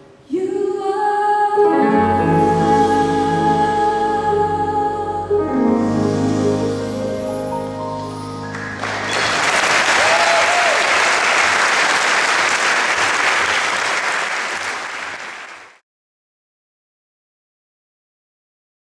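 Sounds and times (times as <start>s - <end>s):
audience applause: 8.4s - 15.8s.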